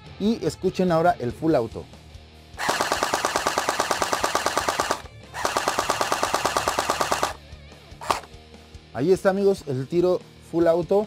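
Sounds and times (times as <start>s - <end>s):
gel blaster firing full auto: 2.6s - 7.4s, 8.0s - 8.3s.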